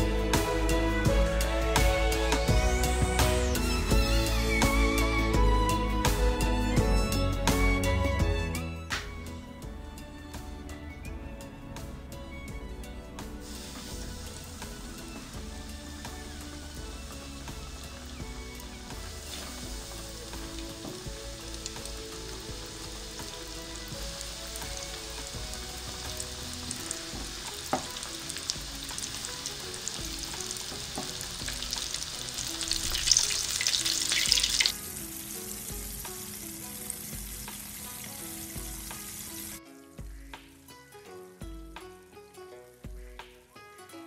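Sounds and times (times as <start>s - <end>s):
chicken wings deep-frying in oil: 13.4s - 40.3s.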